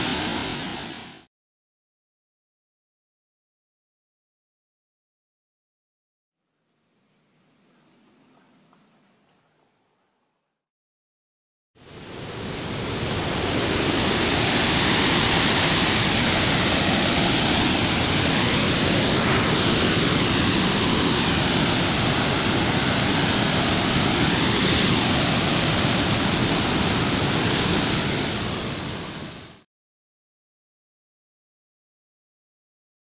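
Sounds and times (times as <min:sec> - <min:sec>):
steady rushing noise: 0:00.0 - 0:01.3, 0:11.8 - 0:29.6.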